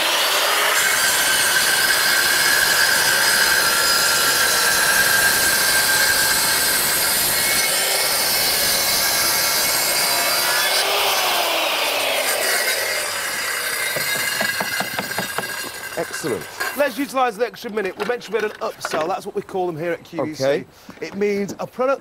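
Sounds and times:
circular saw cutting board: 0:00.0 - 0:17.2.

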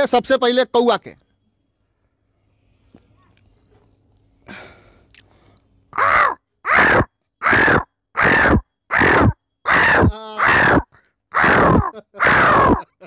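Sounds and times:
man imitating crow caws: 0:05.9 - 0:13.0.

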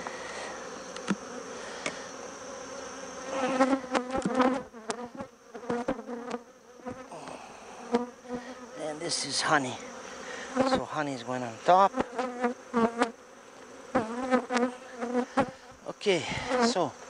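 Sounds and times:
honeybees buzzing: 0:00.0 - 0:17.0
hive tool clicking on wooden frames: 0:00.9 - 0:02.0, 0:03.6 - 0:07.1.

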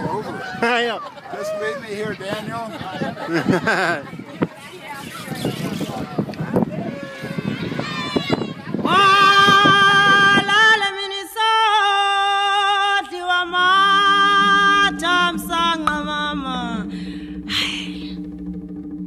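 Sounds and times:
high voices singing: 0:04.8 - 0:19.0
steady low drone: 0:13.2 - 0:19.0.

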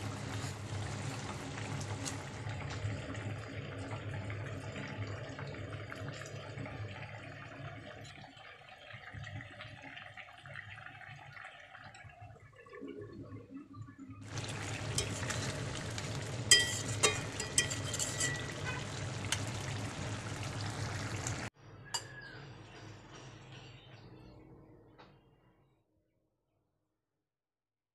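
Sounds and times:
curry bubbling: 0:00.0 - 0:21.5.

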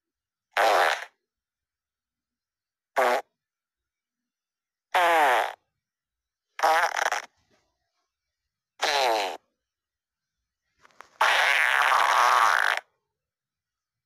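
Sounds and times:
fart sounds: 0:00.5 - 0:01.2, 0:02.9 - 0:03.4, 0:04.9 - 0:05.7, 0:06.6 - 0:07.5, 0:08.8 - 0:09.5, 0:10.8 - 0:13.0.

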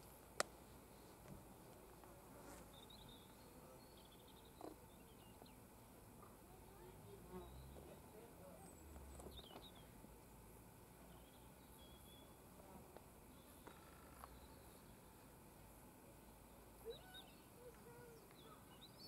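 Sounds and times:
faint low hum: 0:00.0 - 0:19.0
faint high chirps: 0:16.8 - 0:19.0.

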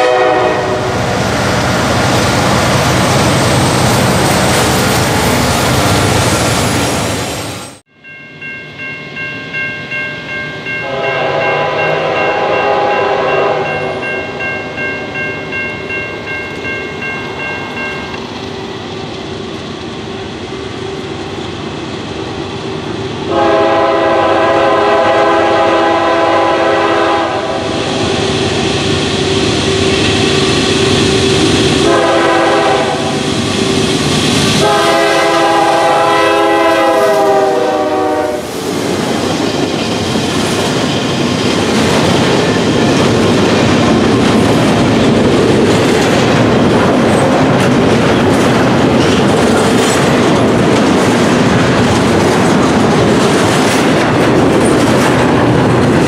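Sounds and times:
train horn blasts: 0:00.0 - 0:01.0, 0:10.8 - 0:14.2, 0:23.3 - 0:27.8, 0:31.8 - 0:33.2, 0:34.6 - 0:38.5
train wheels on rails: 0:00.0 - 0:56.0.

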